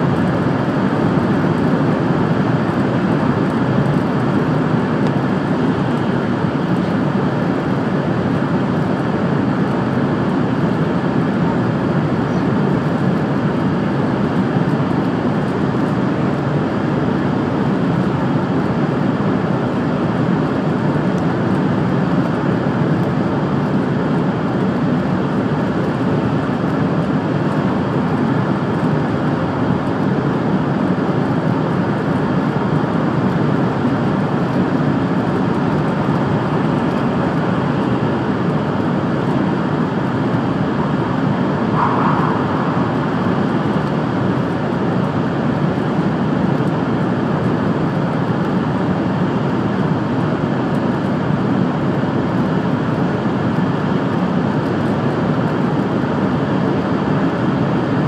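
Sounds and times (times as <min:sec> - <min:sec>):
train cabin rumble and rush: 0:40.0 - 0:45.9.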